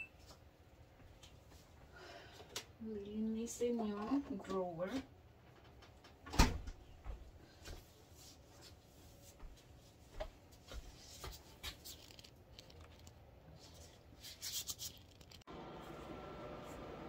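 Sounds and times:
gloved hands rustling: 0:10.6 - 0:15.4.

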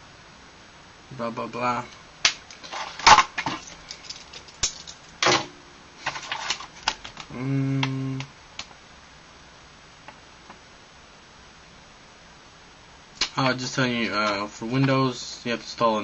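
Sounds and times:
man humming: 0:07.3 - 0:08.3.

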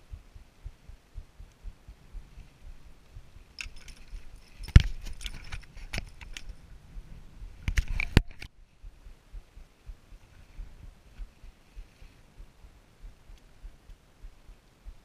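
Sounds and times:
light metallic clinks: 0:03.4 - 0:06.6.

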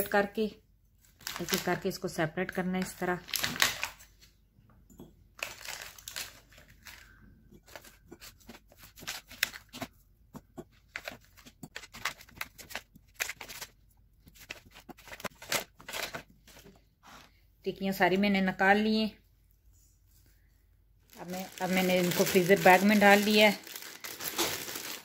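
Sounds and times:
plastic tray crinkling: 0:21.1 - 0:25.0.

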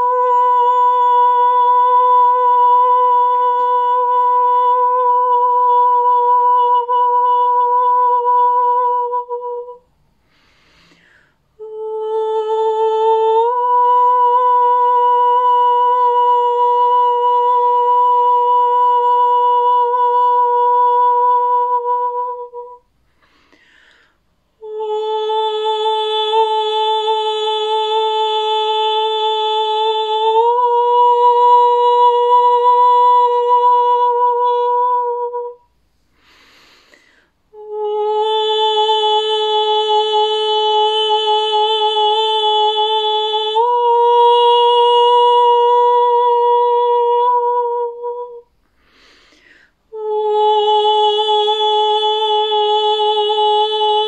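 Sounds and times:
breath: 0:10.1 - 0:11.5, 0:23.0 - 0:24.4, 0:36.0 - 0:37.4, 0:48.6 - 0:49.9.

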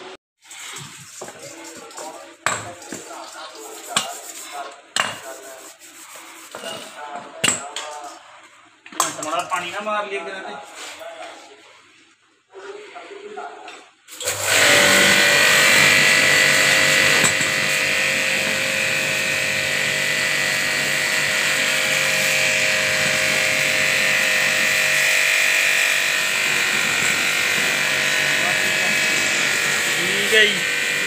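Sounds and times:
water jet hissing: 0:00.4 - 0:06.6
pressure washer motor whine: 0:14.1 - 0:31.0.

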